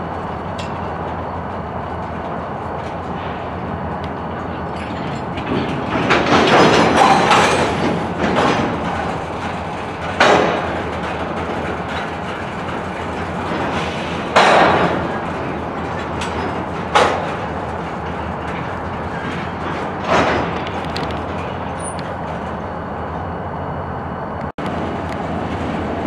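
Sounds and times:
train wheels rumbling on rails: 0.0 - 26.0
sharp metallic bangs: 4.4 - 21.8.

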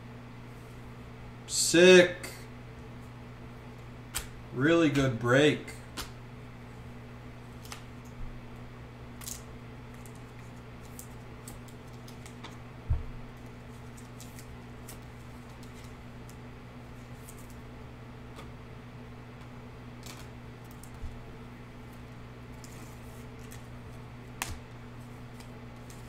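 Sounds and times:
steady low hum: 0.0 - 26.0
trading cards and sleeves shuffled: 9.2 - 12.6, 13.4 - 16.4, 17.0 - 17.6, 21.8 - 26.0.

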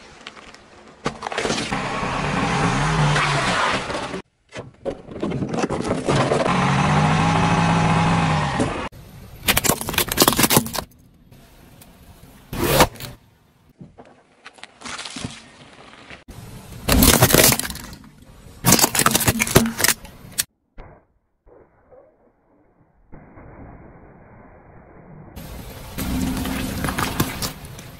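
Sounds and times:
tyre crushing objects: 16.8 - 20.4, 26.0 - 27.9.

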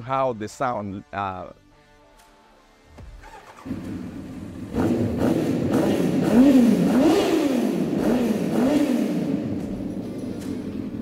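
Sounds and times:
motorcycle engine revving: 3.2 - 11.0.

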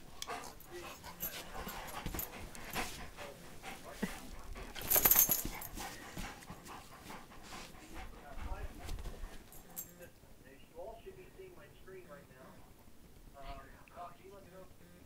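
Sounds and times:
dog panting: 0.0 - 10.1.

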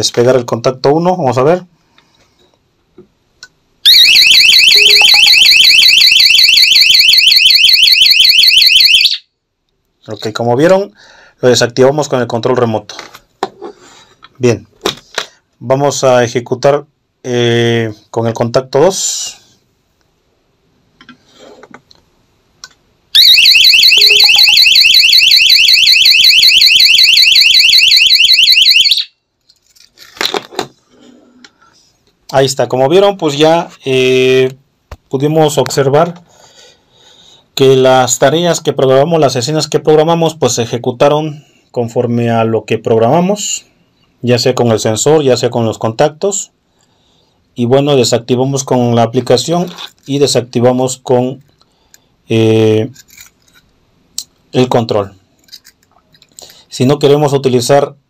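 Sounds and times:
alarm siren warbling: 3.9 - 9.3, 23.2 - 29.1.

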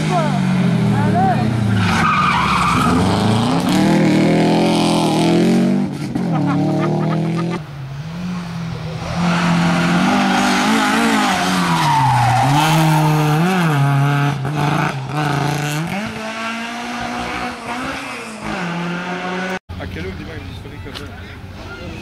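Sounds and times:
rally car engine revving: 0.0 - 19.6
tyres squealing on wet tarmac: 1.7 - 3.1.

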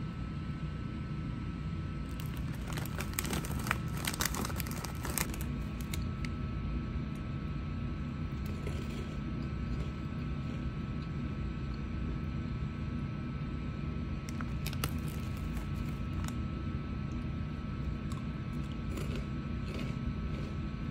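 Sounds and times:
foil snack bag crinkling: 2.1 - 6.2, 14.3 - 16.4.

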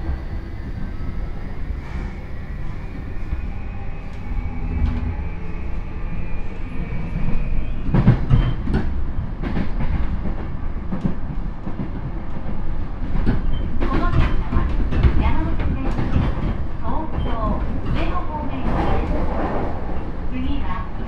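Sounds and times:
train motor whine: 0.0 - 7.2
train running rumble: 0.0 - 21.0.

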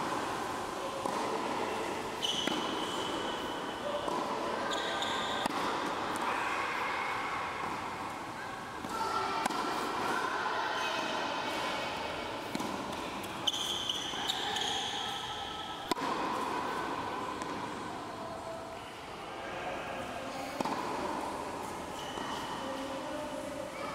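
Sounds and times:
tennis balls bouncing on court: 1.0 - 1.6, 2.2 - 6.3, 12.4 - 14.7, 15.8 - 17.7, 20.6 - 21.3
tennis balls struck by racket: 1.0 - 1.6, 2.2 - 6.3, 8.8 - 10.2, 12.4 - 13.4, 15.8 - 17.7, 20.6 - 21.3.

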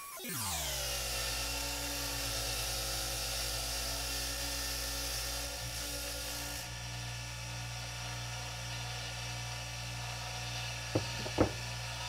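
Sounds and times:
bench grinder motor running: 5.5 - 12.0
sharp knocks: 11.0 - 11.6.

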